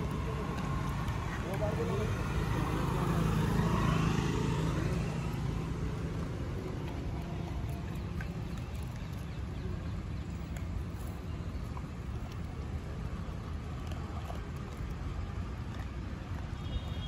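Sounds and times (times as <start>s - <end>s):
low outdoor rumble: 0.0s - 17.0s
dog crunching kibble: 4.7s - 9.5s.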